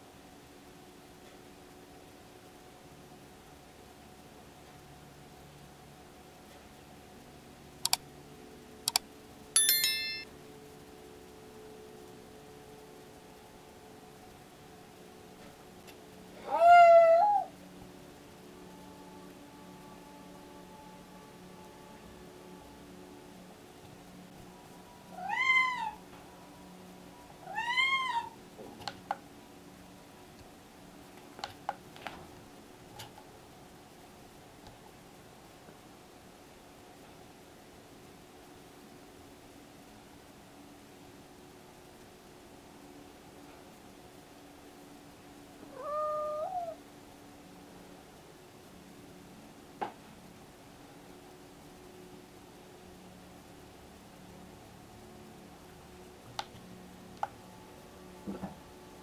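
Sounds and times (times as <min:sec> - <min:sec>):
bright notification chime: 0:09.6 - 0:10.3
cat meowing: 0:16.4 - 0:17.5, 0:25.1 - 0:26.0, 0:27.4 - 0:28.4, 0:45.7 - 0:46.8.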